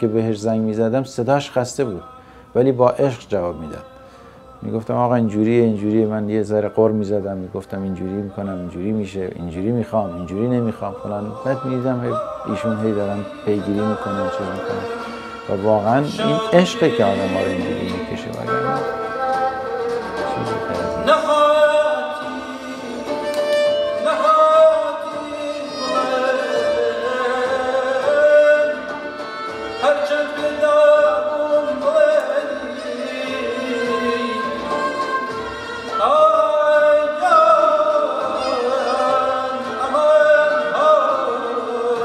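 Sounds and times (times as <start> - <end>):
person singing ornamented lines: 1.4 - 42.0
plucked strings: 10.8 - 42.0.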